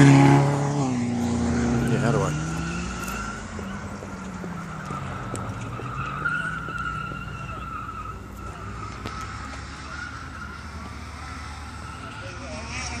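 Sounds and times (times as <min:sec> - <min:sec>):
sports car engine: 0:00.0 - 0:13.0
tyres squealing: 0:01.2 - 0:13.0.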